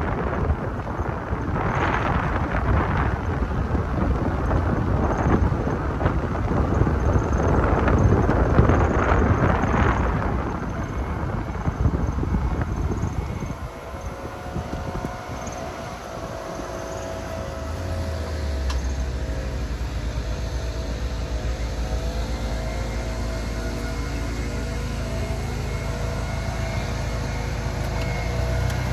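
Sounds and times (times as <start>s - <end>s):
car driving: 0.0s - 28.9s
faint steady hum: 0.0s - 28.9s
road rumble: 0.0s - 28.9s
wind buffeting: 0.0s - 28.9s.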